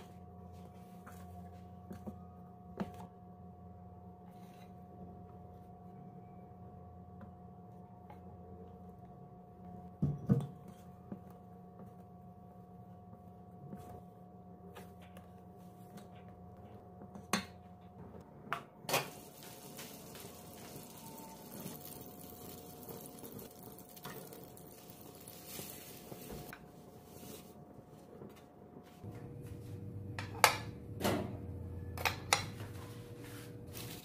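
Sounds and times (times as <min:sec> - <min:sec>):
butter sizzling in frying pan: 0:19.1 - 0:26.5.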